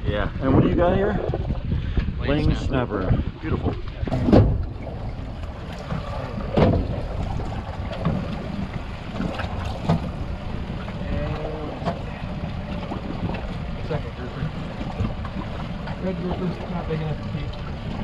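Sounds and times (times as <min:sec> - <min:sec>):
wind buffeting microphone: 0:00.0 - 0:18.0
waves against boat hull: 0:00.4 - 0:18.0
knocks on boat: 0:03.6 - 0:13.7.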